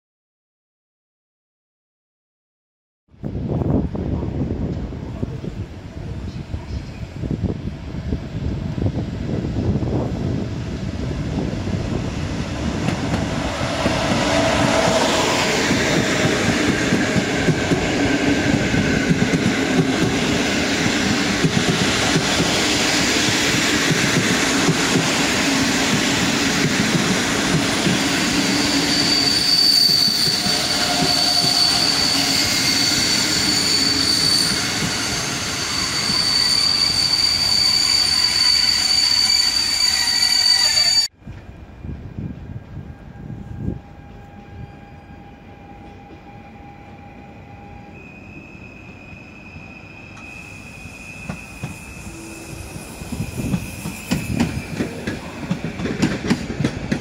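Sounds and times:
train wheels rumbling on rails: 0:03.3 - 0:57.0
high-pitched squeal: 0:27.2 - 0:41.2, 0:43.8 - 0:55.4.

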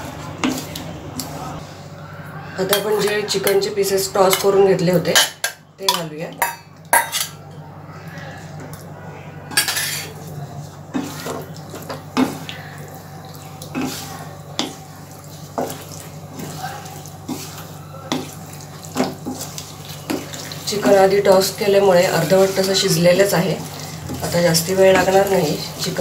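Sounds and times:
spoon scraping a wok: 0:02.6 - 0:07.4, 0:09.6 - 0:10.2, 0:10.9 - 0:12.5, 0:13.7 - 0:26.0.

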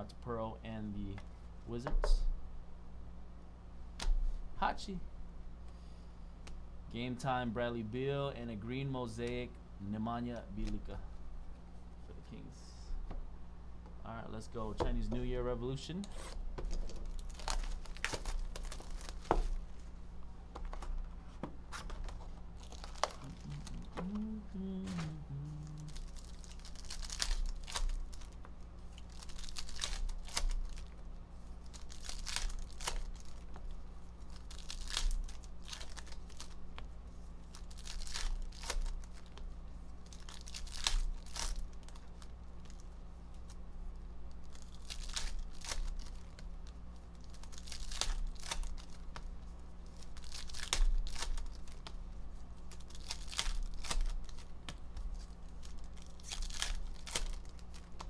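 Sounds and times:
card packs torn and crinkled: 0:16.7 - 0:19.6, 0:22.0 - 0:31.0, 0:31.6 - 0:33.6, 0:34.2 - 0:36.8, 0:37.4 - 0:39.4, 0:40.0 - 0:43.6, 0:44.3 - 0:52.0, 0:52.6 - 0:58.0.

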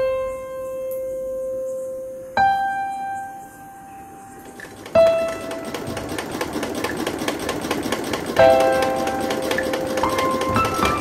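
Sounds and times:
soft piano notes: 0:00.0 - 0:06.2, 0:08.4 - 0:11.0
fast mechanical rattle: 0:04.5 - 0:11.0.

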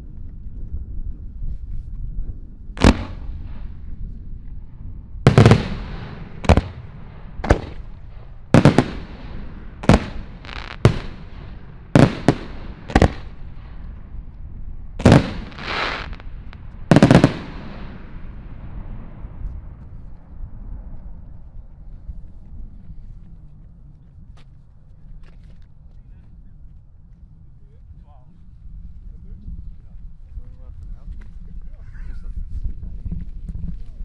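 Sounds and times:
fireworks bangs with echo: 0:02.8 - 0:03.8, 0:05.3 - 0:14.0, 0:15.0 - 0:19.2.

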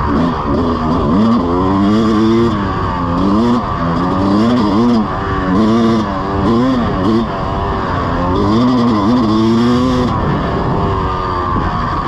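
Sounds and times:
dirt bike engine revving: 0:00.0 - 0:12.0
wind rushing over microphone: 0:05.0 - 0:12.0.

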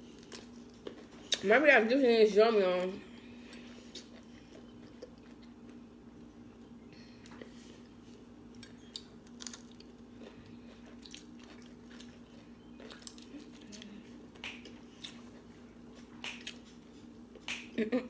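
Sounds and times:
wet chewing and crunching: 0:00.0 - 0:01.5, 0:03.4 - 0:05.8, 0:07.3 - 0:17.5
faint low hum: 0:00.0 - 0:18.0.

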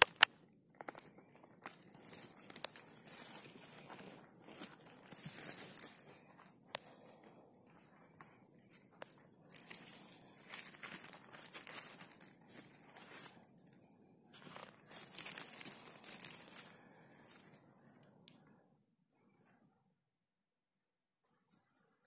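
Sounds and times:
needles and litter rustling: 0:00.0 - 0:17.6.

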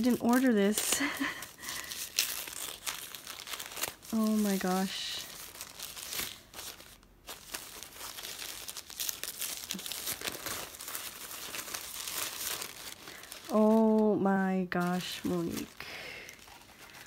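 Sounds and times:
tissue paper crinkling: 0:00.0 - 0:17.0.

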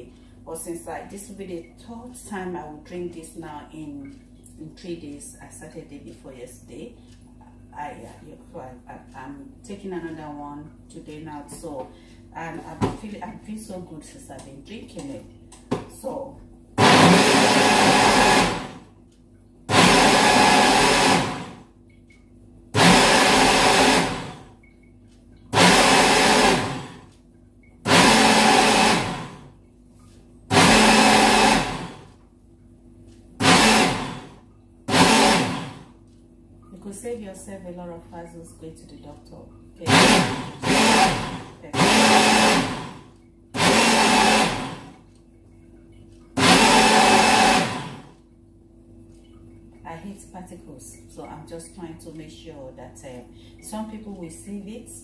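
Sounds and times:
blender motor whirring: 0:16.8 - 0:18.9, 0:19.7 - 0:21.6, 0:22.8 - 0:24.6, 0:25.5 - 0:27.2, 0:27.8 - 0:29.5, 0:30.5 - 0:32.2, 0:33.4 - 0:36.0, 0:39.8 - 0:45.0, 0:46.4 - 0:48.2.

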